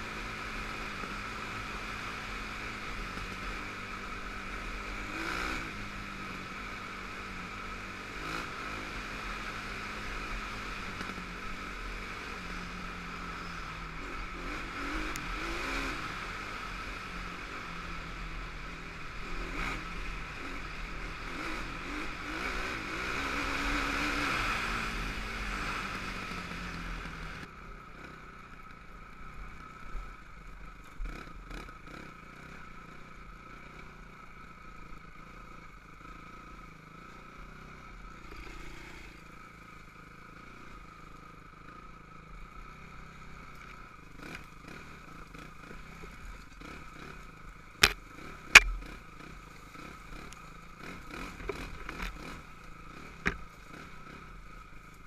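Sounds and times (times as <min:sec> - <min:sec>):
quad engine revving: 0:00.0 - 0:28.1, 0:44.1 - 0:54.4.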